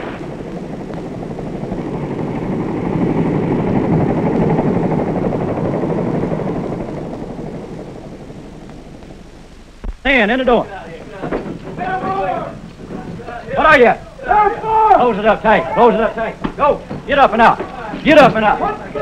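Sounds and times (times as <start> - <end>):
helicopter engine and rotor: 0.0 - 9.7.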